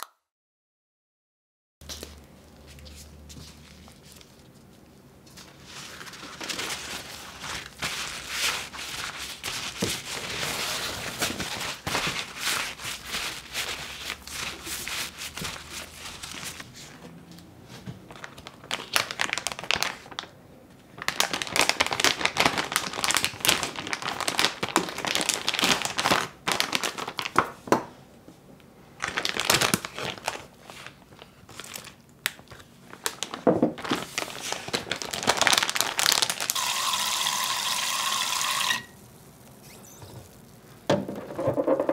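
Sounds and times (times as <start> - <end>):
plastic bag crinkling: 1.8 - 16.7, 18.1 - 27.5, 29.0 - 37.4
paper towel rustling: 1.8 - 20.2, 32.5 - 36.5.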